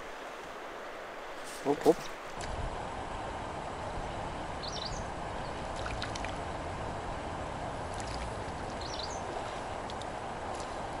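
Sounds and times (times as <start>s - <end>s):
river water rushing: 0.0s - 11.0s
bird chirp: 4.6s - 5.6s, 8.8s - 9.3s.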